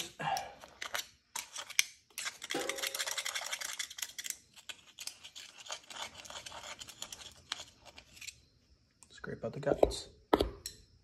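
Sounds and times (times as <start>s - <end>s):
screwdriver scraping metal: 0.6s - 8.4s.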